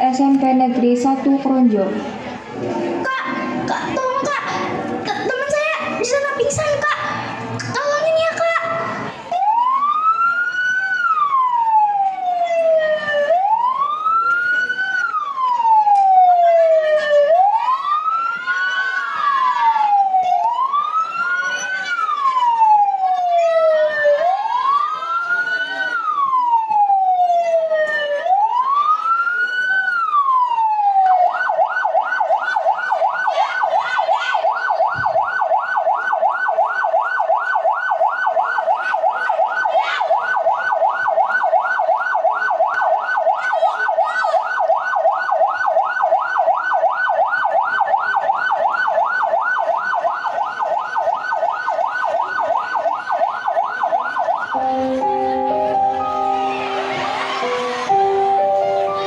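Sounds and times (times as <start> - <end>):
fast siren yelp: 8.0 - 59.0
siren wailing over loudspeakers: 8.0 - 59.0.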